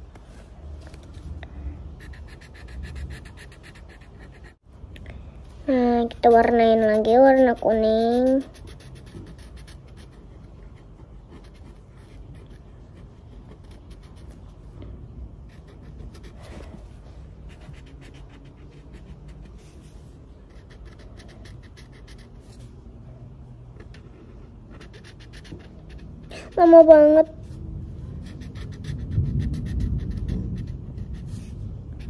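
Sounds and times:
crayon scribbling on paper: 0:02.0 - 0:04.6, 0:06.1 - 0:14.4, 0:15.5 - 0:16.8, 0:17.4 - 0:22.6, 0:23.9 - 0:27.0, 0:28.2 - 0:32.0.

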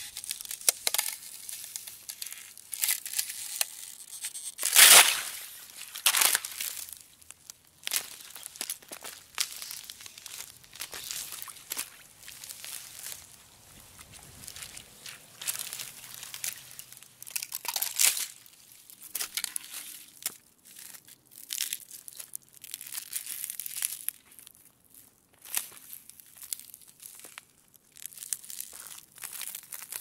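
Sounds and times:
ice cracking and snapping: 0:00.0 - 0:24.3, 0:25.6 - 0:30.0.

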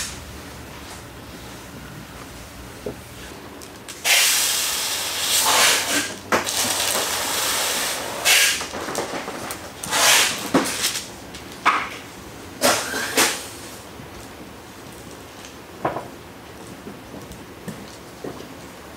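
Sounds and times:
spray bottle hissing: 0:04.0 - 0:05.8.

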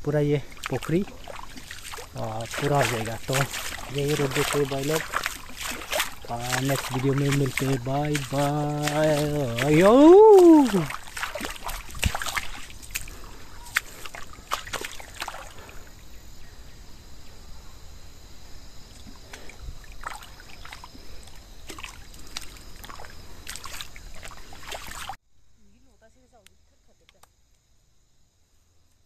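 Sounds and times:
footsteps through wet mud: 0:00.0 - 0:15.9, 0:18.9 - 0:25.2
faint water trickle: 0:00.0 - 0:16.6, 0:18.8 - 0:26.5.

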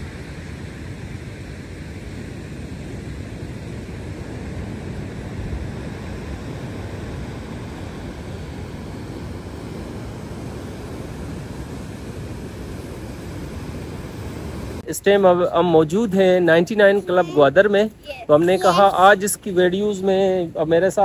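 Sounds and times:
wind on microphone: 0:00.0 - 0:14.8.

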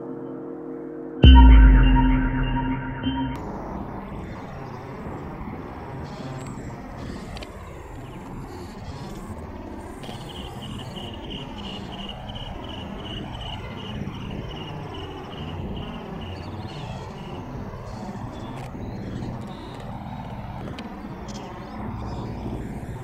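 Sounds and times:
high pulsed chirping call: 0:01.2 - 0:03.4.

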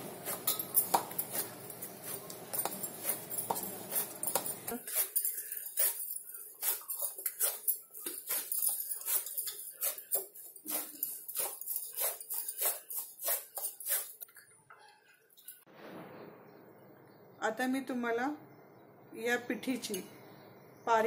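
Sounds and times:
dough squishing and patting: 0:00.0 - 0:05.1
glass bangles clinking: 0:00.2 - 0:15.6.

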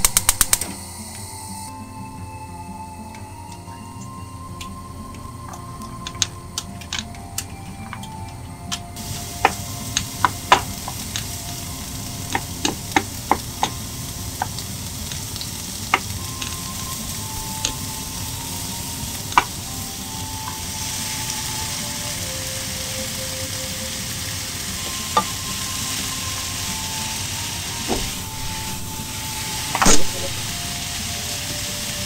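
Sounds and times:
onions sizzling in oil: 0:09.0 - 0:32.0.

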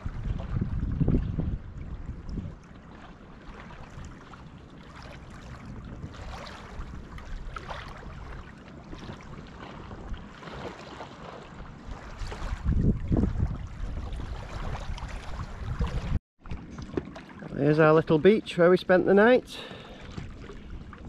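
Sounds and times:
wind gusting on microphone: 0:00.0 - 0:02.6, 0:05.4 - 0:10.3, 0:11.8 - 0:16.2.

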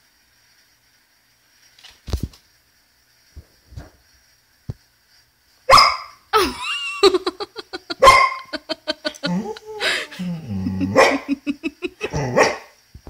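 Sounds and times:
dog barking: 0:05.7 - 0:06.2, 0:08.0 - 0:08.5, 0:10.8 - 0:11.4, 0:12.0 - 0:12.8
dog yelping: 0:07.8 - 0:11.4.

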